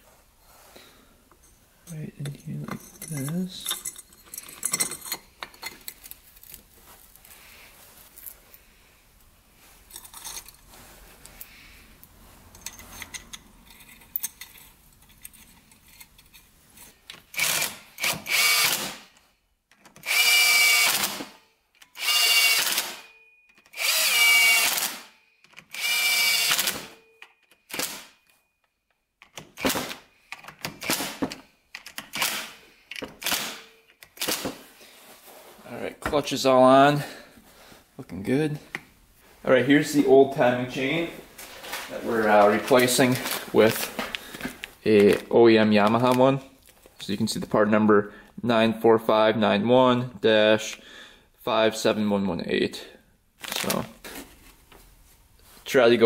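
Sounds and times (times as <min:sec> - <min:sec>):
faint clicks of parts handled: 0:01.3 - 0:08.6, 0:09.8 - 0:17.3
cordless driver whirring: 0:17.4 - 0:19.0, 0:20.0 - 0:23.1, 0:23.7 - 0:25.1, 0:25.7 - 0:27.0.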